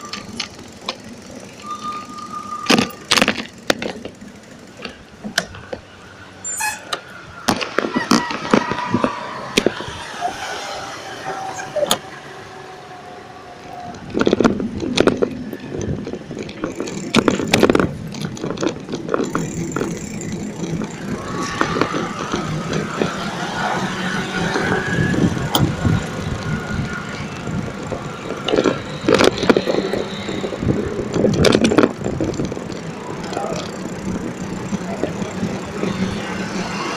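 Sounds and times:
bicycle rattling over paving: 0.0s - 36.9s
city street traffic: 0.0s - 36.9s
whining tone: 0.0s - 36.9s.

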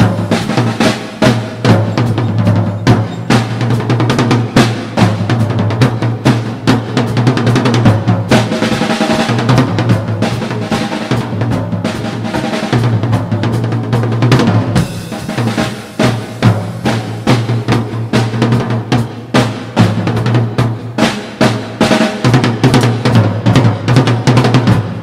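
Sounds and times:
bass drum: 0.0s - 25.0s
drum kit solo: 0.0s - 25.0s.

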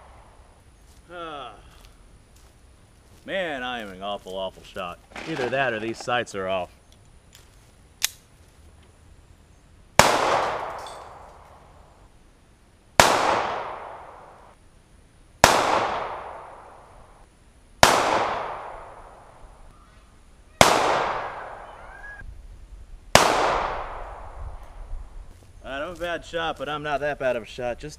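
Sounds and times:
sharp click: 8.0s - 8.2s
pistol shots ringing out: 10.0s - 11.5s, 13.0s - 14.4s, 15.4s - 16.8s, 17.8s - 19.2s, 20.6s - 21.7s, 23.2s - 24.4s.

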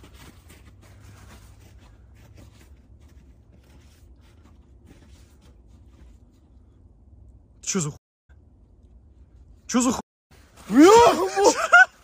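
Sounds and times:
rustling of hands and clothing: 0.0s - 6.9s
low steady rumble: 0.0s - 10.7s.

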